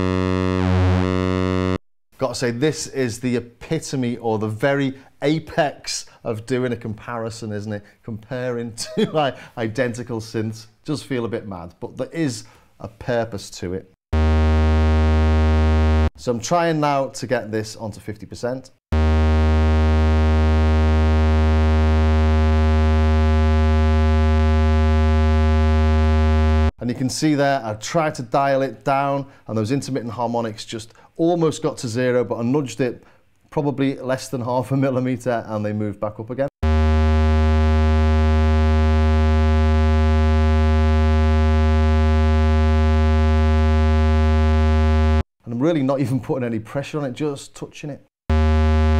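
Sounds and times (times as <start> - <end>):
low square-wave synth tone: 0.0 - 1.8, 14.2 - 16.1, 18.9 - 26.8, 36.6 - 45.3, 48.3 - 48.9.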